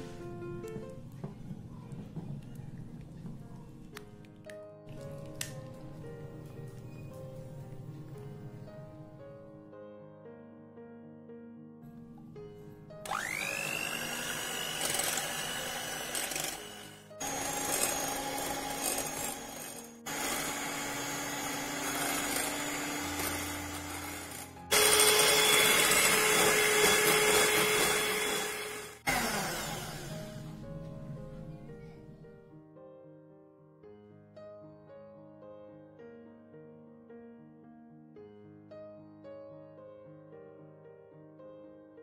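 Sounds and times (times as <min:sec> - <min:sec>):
soft piano music: 0:00.0 - 0:13.2, 0:15.4 - 0:20.1, 0:21.2 - 0:24.7, 0:30.0 - 0:42.0
electric hand mixer whirring: 0:13.0 - 0:30.6.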